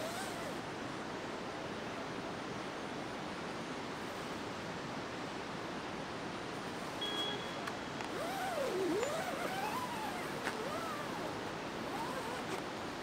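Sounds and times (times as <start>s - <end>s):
outdoor ambience rushing: 5.9s - 13.0s.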